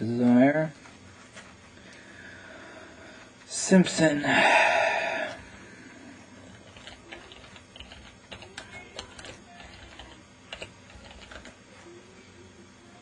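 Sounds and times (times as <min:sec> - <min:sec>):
typing on a computer keyboard: 0:06.7 - 0:11.5.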